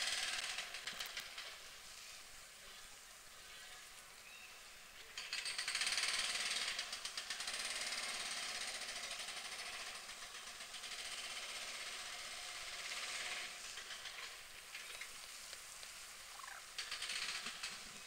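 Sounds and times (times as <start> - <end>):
flock of birds chattering: 13.7 - 18.0
short falling bird call: 16.3 - 16.7.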